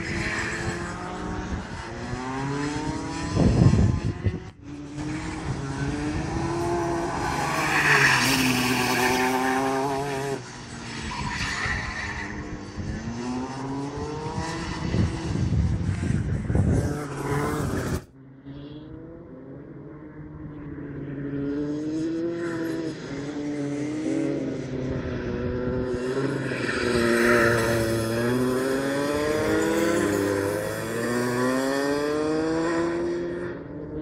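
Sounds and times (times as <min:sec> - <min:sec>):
kart engines lapping: 0:04.8 - 0:15.7, 0:22.4 - 0:33.0.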